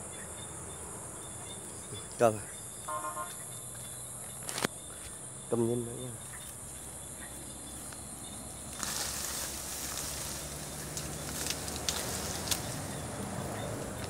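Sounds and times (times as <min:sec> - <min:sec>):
insects trilling: 0:00.0 - 0:14.0
leafy branches rustling: 0:06.2 - 0:14.0
twigs cracking: 0:07.8 - 0:14.0.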